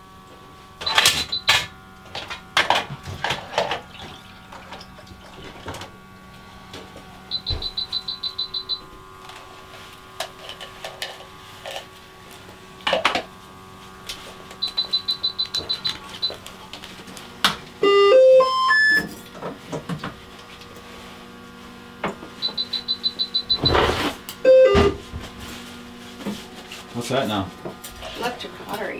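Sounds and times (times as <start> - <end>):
high electronic beeps: 7.3 - 8.8, 14.6 - 16.4, 17.8 - 19.1, 22.4 - 23.7, 24.5 - 24.9
rising electronic tones: 17.8 - 19.1.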